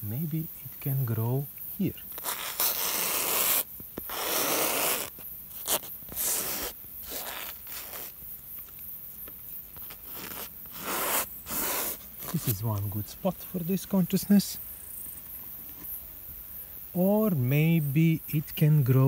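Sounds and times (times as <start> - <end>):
paint scraping on canvas: 2.1 - 8.8, 9.8 - 12.6.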